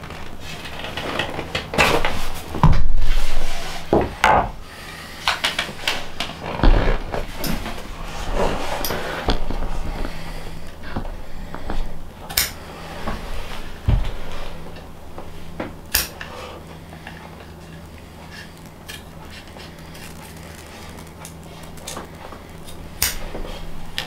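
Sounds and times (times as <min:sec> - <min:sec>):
steady low hum: 0:00.0 - 0:24.0
small hard objects clicking: 0:17.0 - 0:23.2.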